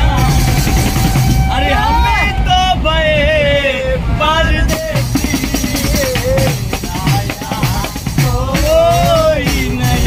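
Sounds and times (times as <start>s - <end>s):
hand-beaten frame drum: 0.0s - 1.5s, 4.7s - 10.0s
men singing folk song: 0.0s - 10.0s.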